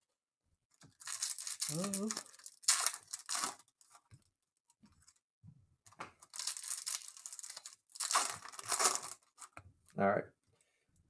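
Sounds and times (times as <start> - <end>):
foil wrapper crinkling and tearing: 0.9 - 4.1, 6.2 - 9.6.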